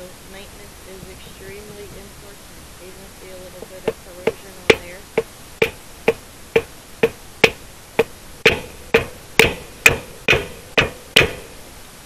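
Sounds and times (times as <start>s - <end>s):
hammer striking metal: 3.8s - 11.6s.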